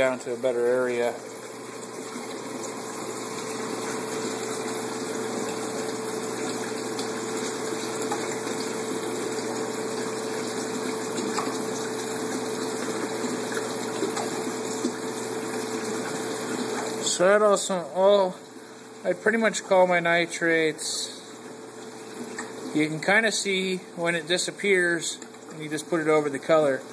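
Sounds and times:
flowing water: 0:00.0 - 0:26.9
water pump humming: 0:00.0 - 0:26.9.

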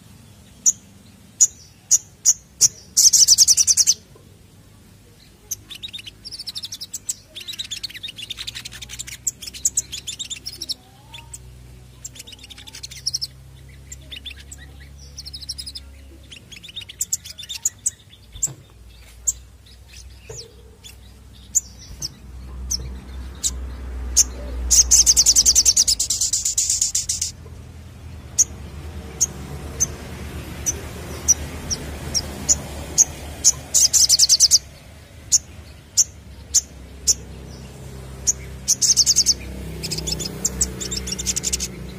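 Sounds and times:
sunbird chirps and trills: 0:00.0 - 0:41.9
sharp bird chips: 0:00.6 - 0:04.0, 0:05.4 - 0:27.5, 0:28.2 - 0:41.9.

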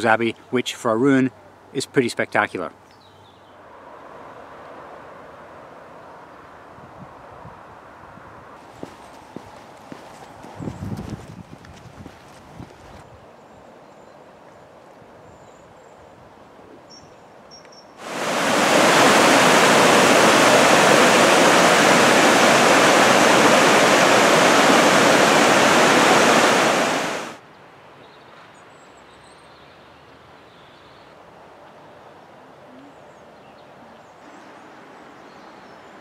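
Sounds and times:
quiet outdoor background: 0:00.0 - 0:36.0
river rushing over rapids: 0:18.0 - 0:27.4.

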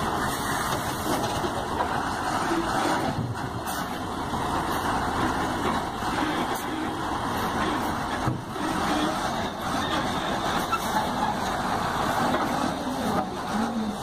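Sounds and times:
wheel loader diesel engine running: 0:00.0 - 0:14.0.

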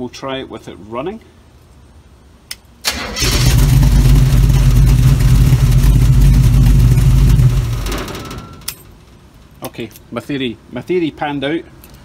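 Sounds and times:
engine cranking: 0:02.9 - 0:08.5
car engine running: 0:03.4 - 0:08.4.

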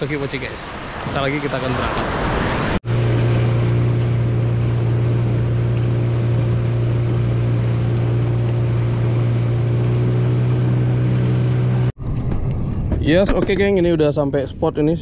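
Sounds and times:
water rushing past hull: 0:00.0 - 0:12.0
boat engine running: 0:02.8 - 0:12.0.

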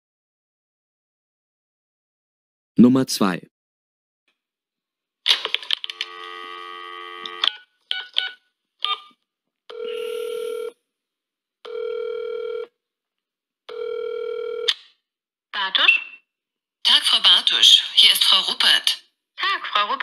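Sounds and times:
telephone dial tone: 0:05.9 - 0:09.0, 0:09.7 - 0:10.8, 0:11.7 - 0:12.7, 0:13.7 - 0:14.7
telephone ringing tones: 0:05.9 - 0:09.1, 0:09.7 - 0:10.8, 0:11.7 - 0:12.8, 0:13.7 - 0:14.7
keypad beeps: 0:07.3 - 0:09.1.

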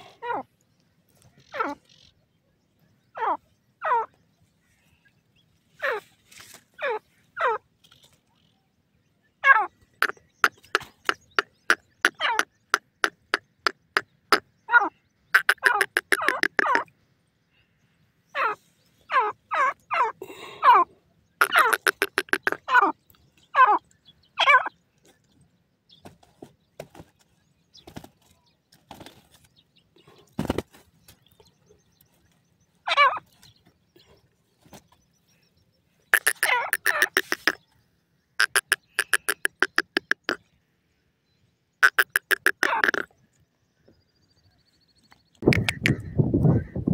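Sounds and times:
bird chattering calls: 0:09.4 - 0:16.9, 0:21.4 - 0:23.0, 0:36.1 - 0:37.7, 0:38.4 - 0:40.4, 0:41.8 - 0:43.1, 0:45.4 - 0:46.8.

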